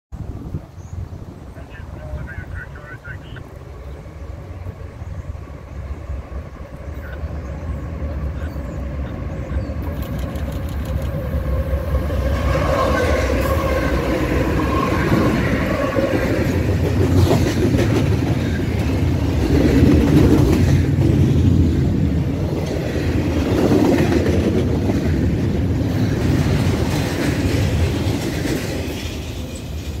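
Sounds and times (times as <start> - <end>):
diesel locomotives passing: 0.2 - 30.0
train wheels clattering on rail joints: 15.1 - 30.0.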